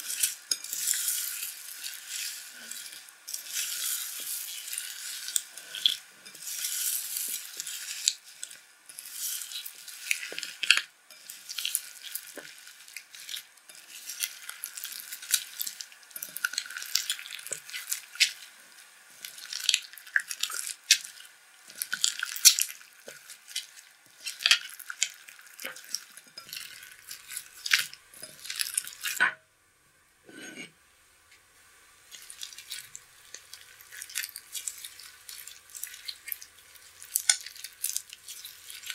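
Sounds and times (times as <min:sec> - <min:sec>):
slime squishing and popping: 0:19.3 - 0:26.6.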